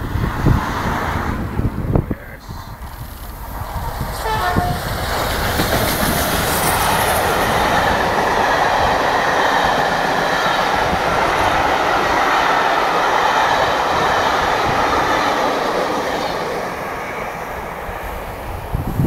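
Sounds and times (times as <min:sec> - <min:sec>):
train rushing and clattering: 0:00.0 - 0:19.0
steam locomotive whistle: 0:04.2 - 0:04.9.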